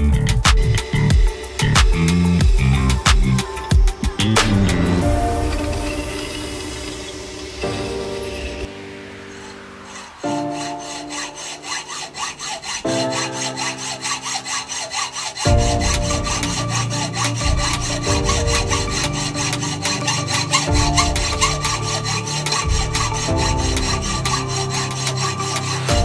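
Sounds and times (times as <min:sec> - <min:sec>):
electronic music with beat: 0:00.0 - 0:05.3
hacksaw cutting steel: 0:04.2 - 0:26.0.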